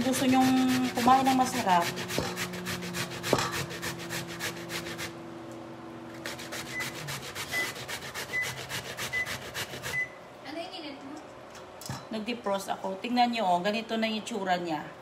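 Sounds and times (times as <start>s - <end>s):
hand grating on metal grater: 0.0s - 5.1s, 6.2s - 10.1s.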